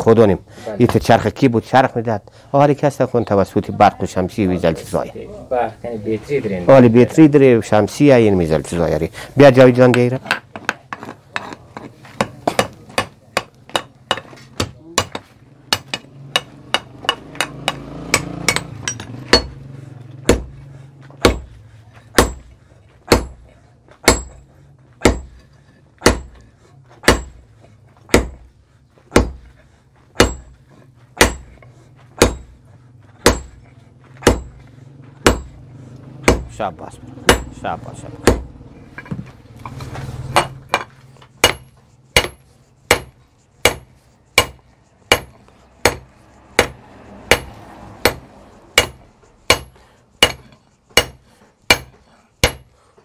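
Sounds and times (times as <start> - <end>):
hammer striking hot iron on anvil: 9.8 - 20.6, 21.2 - 21.5, 22.1 - 26.4, 27.0 - 27.5, 28.1 - 28.5, 29.1 - 29.4, 30.1 - 30.6, 31.2 - 32.6, 33.2 - 33.6, 34.2 - 35.6, 36.2 - 36.6, 37.2 - 39.1, 40.3 - 52.8.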